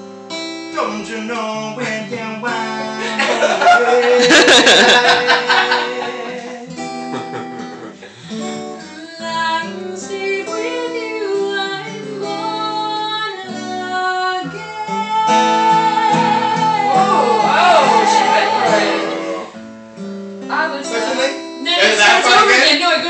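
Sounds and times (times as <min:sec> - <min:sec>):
acoustic guitar chords: 0:00.0 - 0:23.0
woman singing wordless notes: 0:08.8 - 0:19.6.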